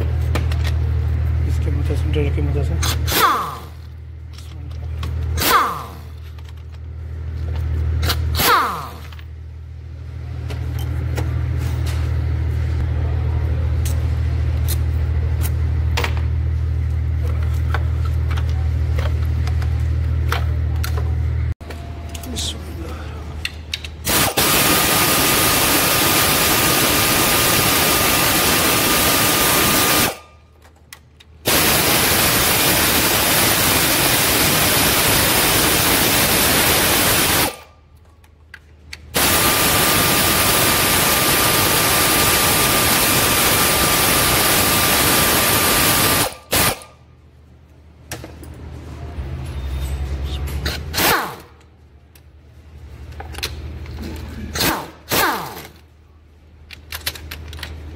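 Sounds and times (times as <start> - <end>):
air ratchet running: 23.7 - 30.3, 31.5 - 37.6, 39.1 - 46.8.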